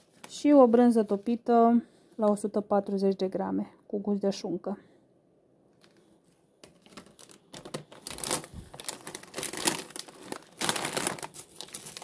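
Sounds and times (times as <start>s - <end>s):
plastic packaging crinkling: 5.8s - 12.0s.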